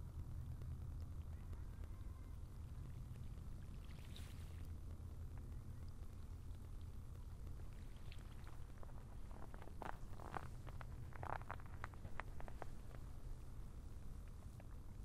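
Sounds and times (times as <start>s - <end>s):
steady low rumble: 0.0s - 15.0s
snow and ice crunching: 8.2s - 13.1s.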